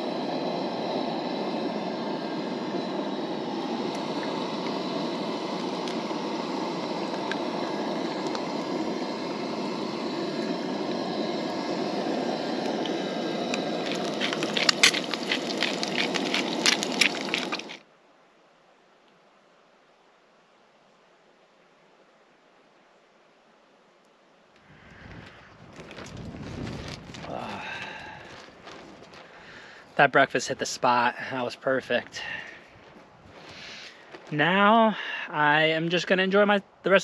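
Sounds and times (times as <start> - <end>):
camp stove burner rushing: 0.0 - 17.8, 24.6 - 36.0
eggs crackling in hot oil: 3.7 - 17.8.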